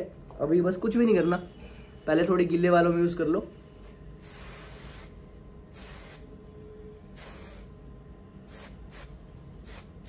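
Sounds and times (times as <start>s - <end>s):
aerosol spray can hissing: 4.2s - 6.3s, 7.2s - 7.7s, 8.5s - 10.0s.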